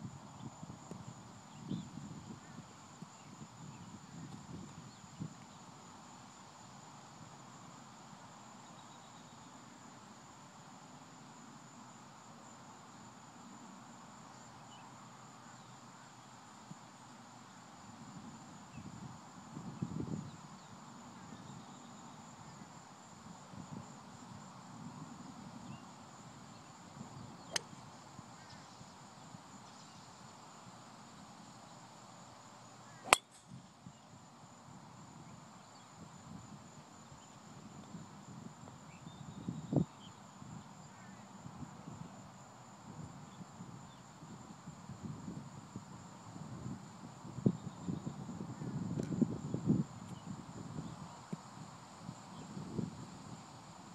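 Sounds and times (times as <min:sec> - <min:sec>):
high insect hum: 0:00.0 - 0:53.9
golf club striking ball: 0:33.0 - 0:33.4.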